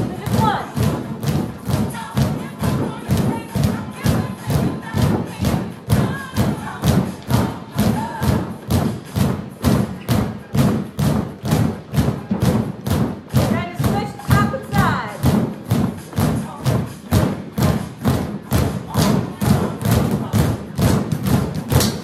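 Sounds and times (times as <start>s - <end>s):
upbeat music: 0.0s - 9.6s
drumsticks thumping exercise balls: 0.0s - 22.0s.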